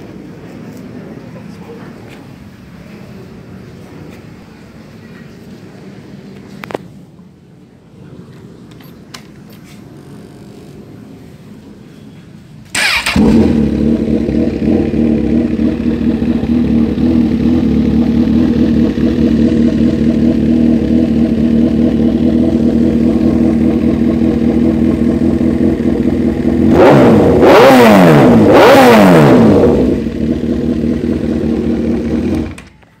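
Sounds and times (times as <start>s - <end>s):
motorcycle engine idling and revving: 8.8s - 12.0s, 12.6s - 33.0s.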